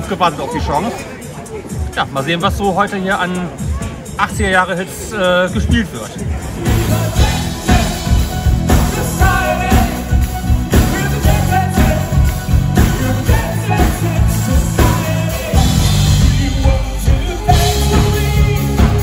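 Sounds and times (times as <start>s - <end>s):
drums: 0.0s - 19.0s
keyboards: 0.0s - 19.0s
guitar: 6.4s - 19.0s
man singing: 6.4s - 19.0s.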